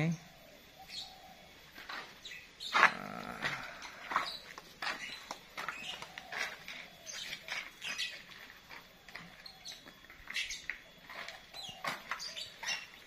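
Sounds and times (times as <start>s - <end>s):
high-pitched animal calls: 2.6s - 4.3s.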